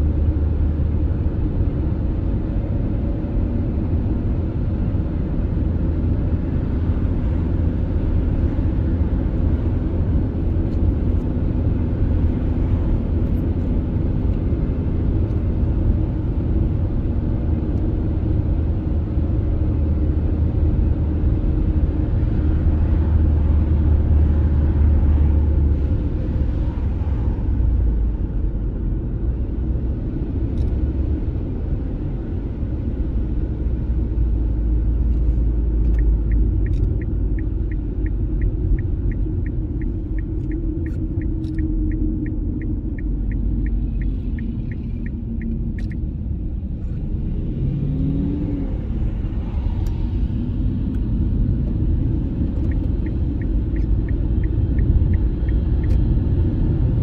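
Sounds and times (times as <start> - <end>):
car road and tyre noise: 0.0 - 57.0.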